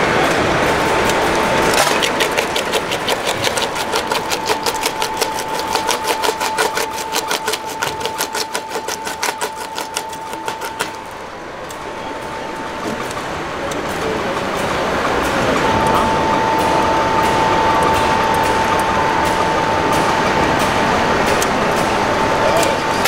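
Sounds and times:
coal cracking in crusher: 0.0 - 12.0.

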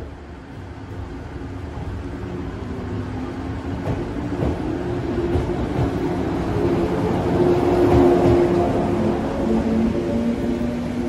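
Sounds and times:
train wheels clacking: 7.4 - 8.8.

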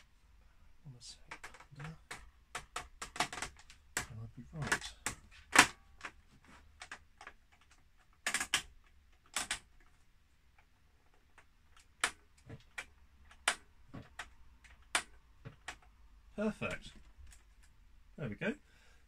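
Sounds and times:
hard plastic clicks and knocks: 1.2 - 9.9.

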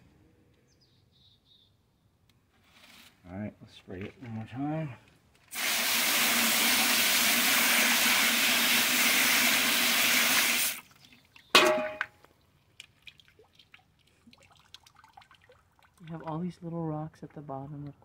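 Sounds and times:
hose nozzle spraying water: 5.5 - 10.9
faint water drips: 10.8 - 16.7.

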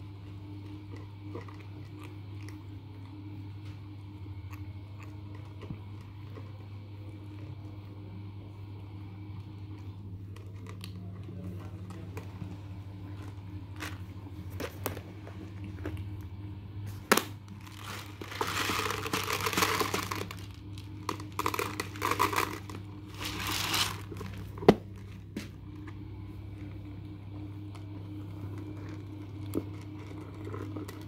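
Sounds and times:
kittens eating dry kibble: 0.0 - 16.4, 17.4 - 31.0
low hum: 0.0 - 31.0
plastic crinkling: 17.1 - 25.2.

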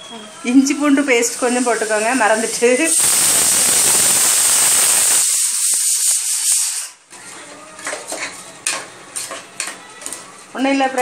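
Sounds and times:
paste sizzling in hot oil: 0.7 - 7.0
steel ladle scraping a pot: 7.8 - 10.2.

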